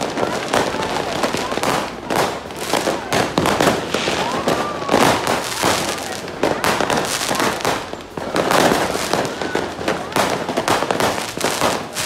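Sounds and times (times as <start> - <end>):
fireworks bangs and crackles: 0.0 - 12.0.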